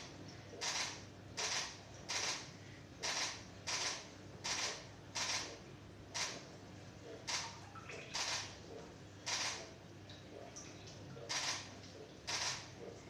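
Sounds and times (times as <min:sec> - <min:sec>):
camera shutter clacking: 0:12.3 - 0:12.6.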